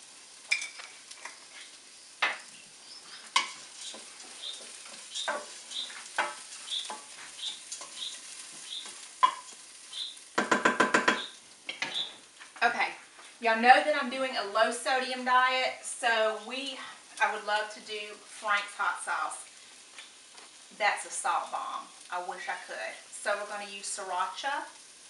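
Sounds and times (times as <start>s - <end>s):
light sizzle: 0.0s - 25.0s
wooden spoon scraping a pot: 3.0s - 9.6s.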